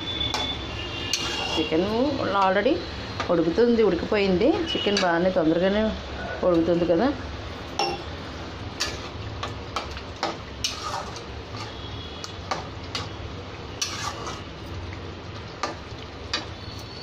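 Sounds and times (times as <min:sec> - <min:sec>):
metal spatula scraping pan: 0:00.2 - 0:01.9, 0:10.2 - 0:11.9, 0:13.8 - 0:14.5.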